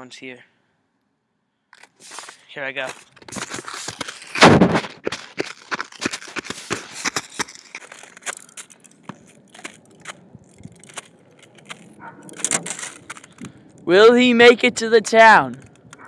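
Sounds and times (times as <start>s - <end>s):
footsteps crunching in snow: 1.8s - 13.6s.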